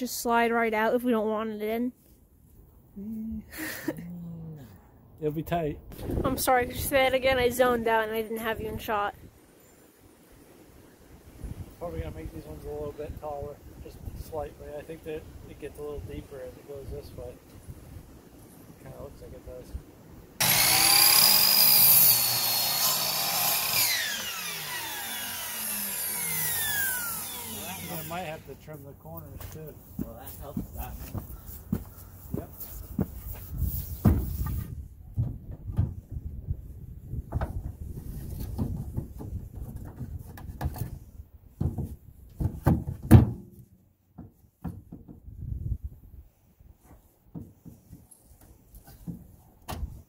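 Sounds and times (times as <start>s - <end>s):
saw blade winding down: 20.4s - 28.5s
miter saw cutting wood: 20.4s - 28.6s
wooden board knocking on truck bed: 34.0s - 34.4s, 41.6s - 45.3s.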